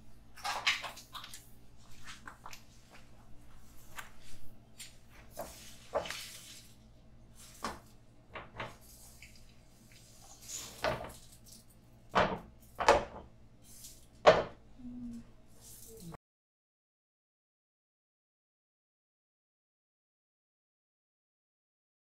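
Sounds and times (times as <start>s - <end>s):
faint steady hum: 0.0s - 16.2s.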